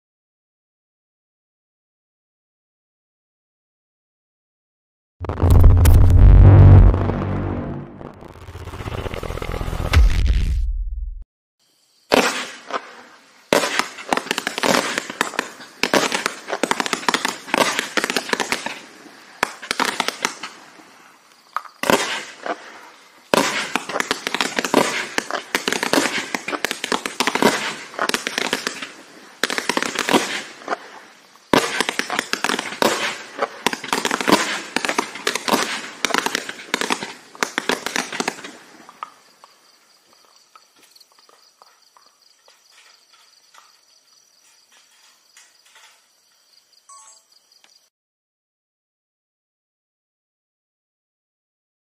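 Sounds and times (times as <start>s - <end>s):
fireworks barrage of shots and breaks: 5.2s - 11.2s, 12.1s - 20.7s, 21.8s - 38.8s.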